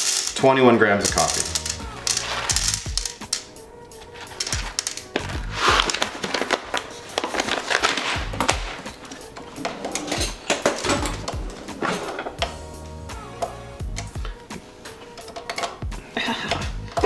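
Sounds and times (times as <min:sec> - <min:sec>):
coffee beans clattering: 0:00.0 - 0:03.5, 0:04.1 - 0:12.4
background music with bass beat: 0:01.1 - 0:03.3, 0:04.6 - 0:05.9, 0:12.4 - 0:15.2, 0:15.8 - 0:17.0.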